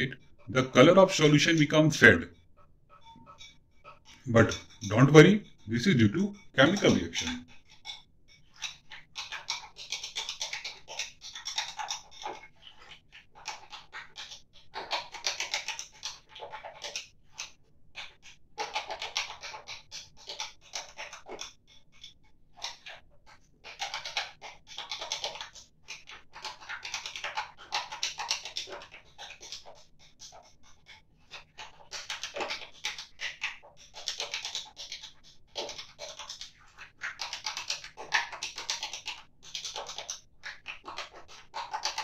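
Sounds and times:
stirring rod scraping in beaker: 0:00.0 - 0:10.2.

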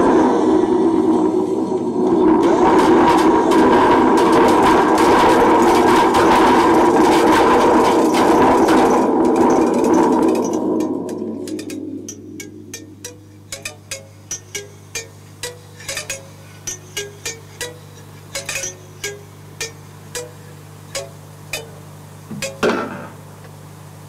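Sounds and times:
steady drone: 0:00.0 - 0:23.2
dense clattering and rattling: 0:02.4 - 0:11.8
sharp ticks: 0:09.7 - 0:21.8.

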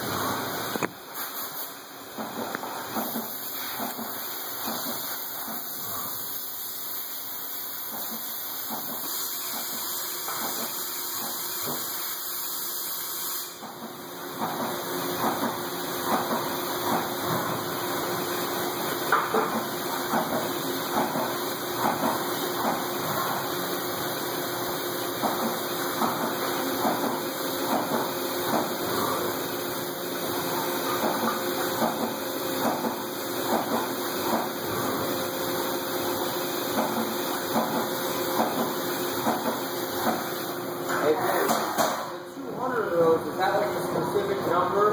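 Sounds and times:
coolant jet hissing and splashing: 0:02.7 - 0:13.7.

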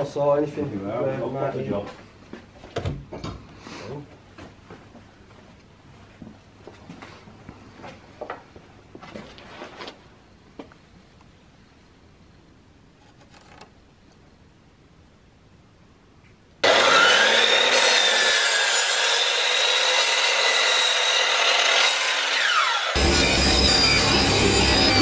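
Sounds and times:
mitre saw cutting wood: 0:16.6 - 0:25.0
saw motor whine: 0:16.6 - 0:25.0.

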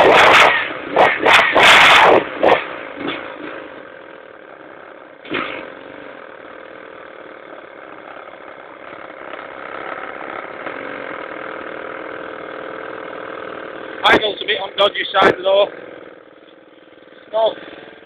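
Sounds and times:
lawn mower engine idling: 0:02.3 - 0:18.0
sharp bang: 0:05.2 - 0:05.8.

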